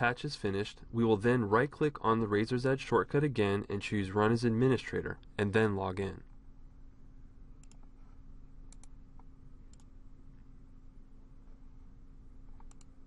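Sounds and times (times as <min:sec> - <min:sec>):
faint steady hum: 0:00.0 - 0:13.0
computer mouse clicks: 0:07.6 - 0:07.9, 0:08.7 - 0:09.9, 0:12.5 - 0:13.0.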